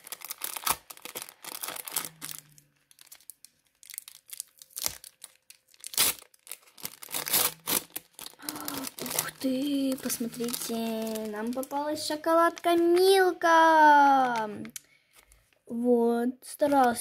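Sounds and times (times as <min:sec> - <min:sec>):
paper bag crinkling: 0:00.0 - 0:13.3.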